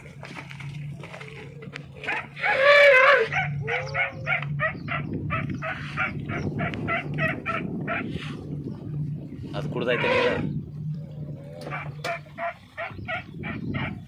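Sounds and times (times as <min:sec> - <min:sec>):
elephant high call: 0:02.0 - 0:08.4.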